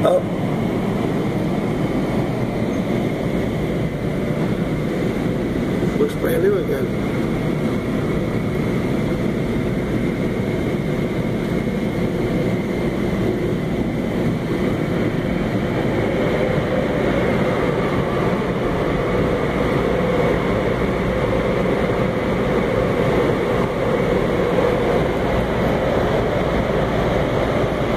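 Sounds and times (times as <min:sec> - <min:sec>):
faint high whine: 0:00.0 - 0:09.4
car wash machinery rushing: 0:00.0 - 0:27.9.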